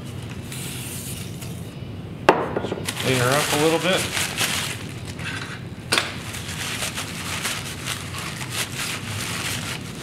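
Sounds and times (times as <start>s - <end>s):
paper towels rustling: 2.9s - 5.3s, 6.2s - 10.0s.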